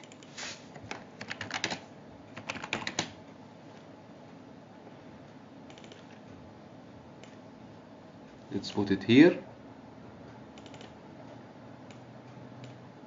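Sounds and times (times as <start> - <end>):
typing on computer keyboard: 0.0 - 1.8, 2.4 - 3.2, 5.7 - 6.2, 10.6 - 11.0.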